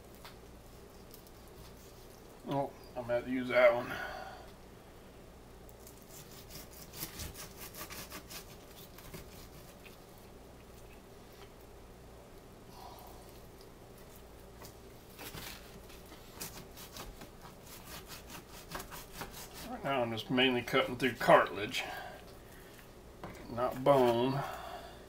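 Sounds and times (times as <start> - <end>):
knife sawing through ribs: 6.1 - 9.8, 16.3 - 19.8.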